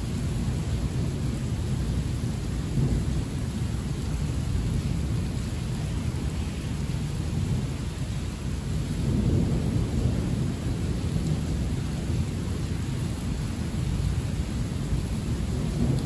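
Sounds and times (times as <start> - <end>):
heavy rain: 0.0 - 16.0
thunder rumbling: 8.5 - 16.0.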